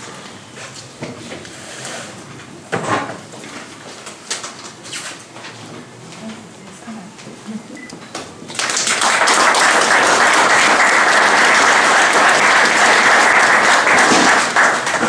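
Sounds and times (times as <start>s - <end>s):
audience applauding: 8.5s - 15.0s.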